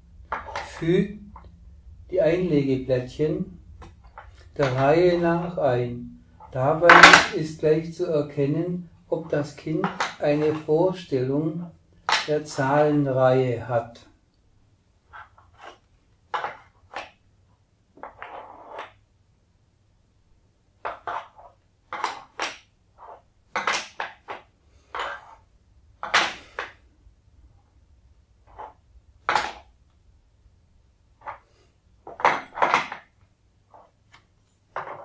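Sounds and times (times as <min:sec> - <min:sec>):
wooden scraping: 0:00.1 - 0:07.5, 0:31.2 - 0:35.0
wooden tiles clacking: 0:00.2 - 0:01.6, 0:06.4 - 0:07.4, 0:09.8 - 0:10.7, 0:12.0 - 0:12.3, 0:15.1 - 0:17.2, 0:18.0 - 0:19.0, 0:20.8 - 0:25.4, 0:26.0 - 0:26.8, 0:28.4 - 0:29.7, 0:31.2 - 0:35.0.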